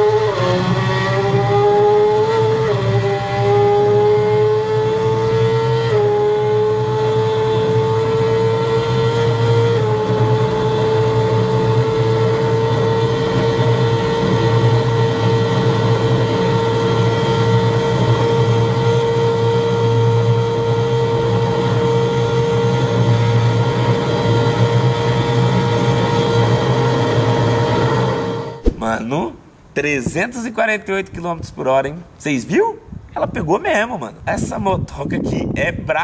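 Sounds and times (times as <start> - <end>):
motorcycle engine at high revs: 0.0 - 27.8
wind rush: 28.6 - 29.3, 32.8 - 36.0.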